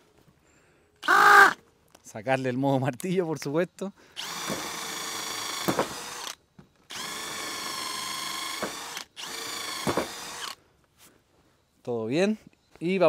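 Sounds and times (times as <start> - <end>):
cordless drill boring into wood: 4.2 - 10.6.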